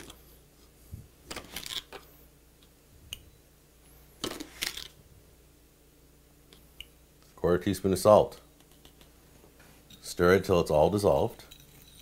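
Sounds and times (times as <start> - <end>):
measuring spoons scraping and clinking: 11.4 - 12.0.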